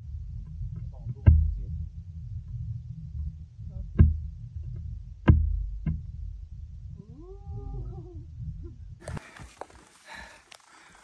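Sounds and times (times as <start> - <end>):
low rumble: 0.0 - 9.2
sharp knocks: 1.1 - 1.6, 3.9 - 4.3, 5.2 - 6.1.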